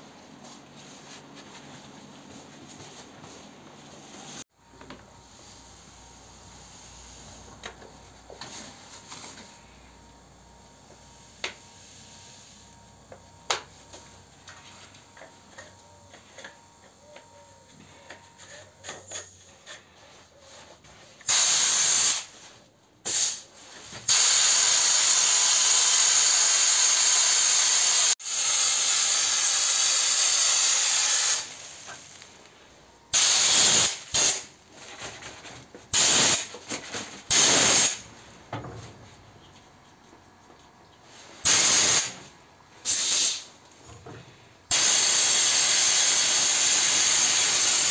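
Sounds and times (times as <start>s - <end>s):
sandblasting gun air hiss: 21.2s - 22.4s, 23.1s - 23.4s, 24.1s - 31.9s, 33.1s - 34.5s, 35.9s - 36.5s, 37.3s - 38.0s, 41.4s - 42.2s, 42.8s - 43.5s, 44.7s - 47.9s.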